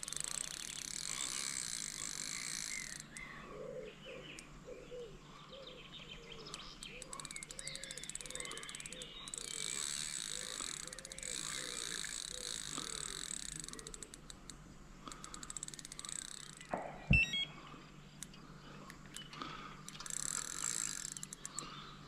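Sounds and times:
frogs croaking: 0:00.1 - 0:05.0, 0:06.8 - 0:14.2
birds chirping: 0:00.6 - 0:14.1, 0:16.0 - 0:22.0.

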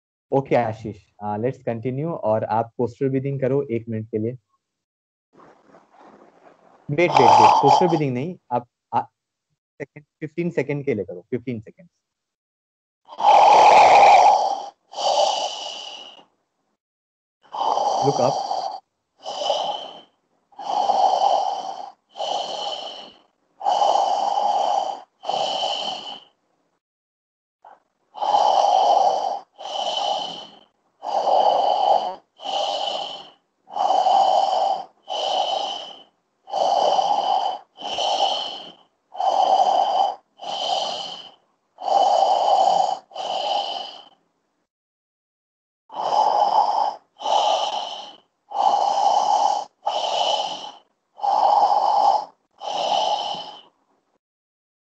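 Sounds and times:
man breathing forcefully: 0:07.0 - 0:08.0, 0:13.1 - 0:16.2, 0:17.5 - 0:26.3, 0:28.2 - 0:44.2, 0:45.9 - 0:53.7.

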